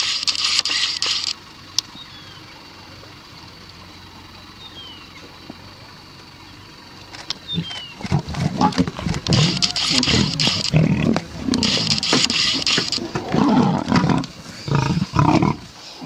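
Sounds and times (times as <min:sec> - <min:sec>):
lions snarling and growling: 0:07.4 - 0:16.0.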